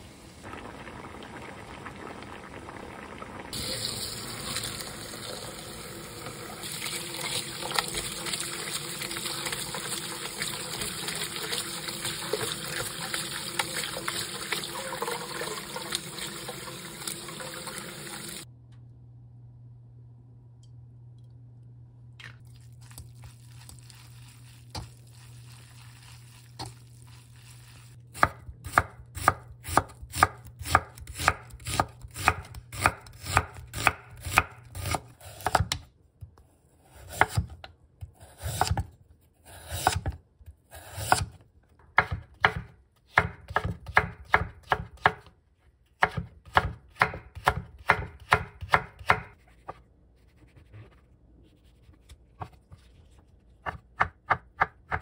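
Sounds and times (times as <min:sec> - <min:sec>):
knife chopping on wooden board: 0:42.0 - 0:45.3, 0:46.0 - 0:49.4.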